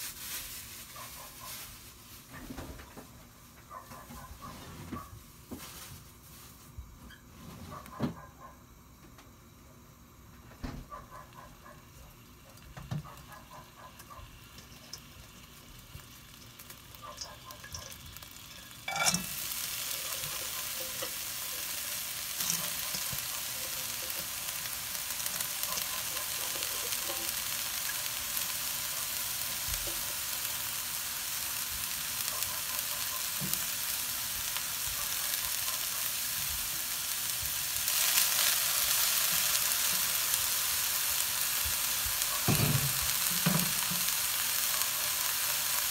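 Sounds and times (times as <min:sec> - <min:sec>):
sprouts sizzling in a wok: 0:00.0 - 0:07.9, 0:08.6 - 0:45.9
sprouts hitting a wok: 0:14.0 - 0:45.9.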